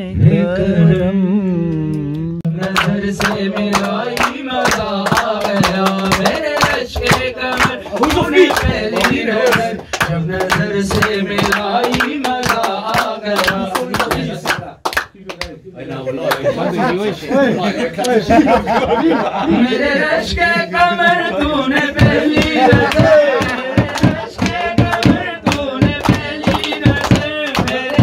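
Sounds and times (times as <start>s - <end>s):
man singing into a microphone: 0.0s - 14.7s
rhythmic hand clapping: 1.7s - 15.6s, 20.3s - 28.0s.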